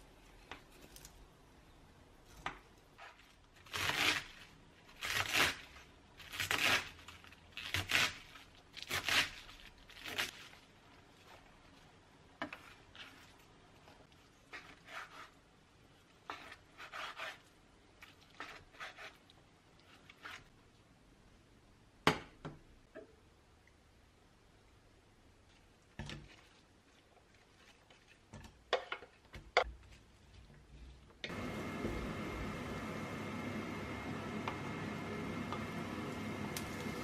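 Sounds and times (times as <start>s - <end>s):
knife crunching through cabbage: 3.0s - 10.6s.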